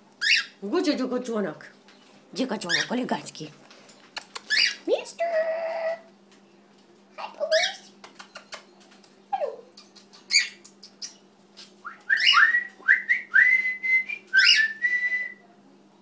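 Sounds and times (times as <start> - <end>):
cockatiel whistling: 11.8 - 15.4.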